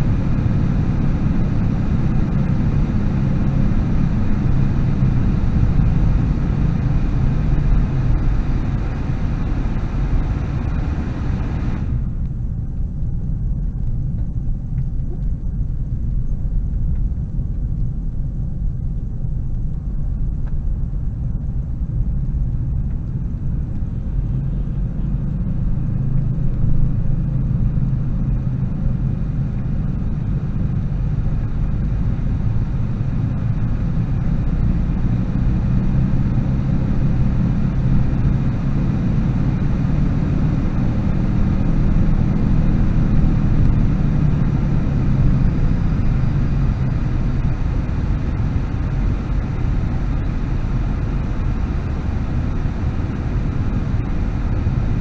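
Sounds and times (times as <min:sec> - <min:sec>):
car engine and tyre rumble: 0:00.0 - 0:55.0.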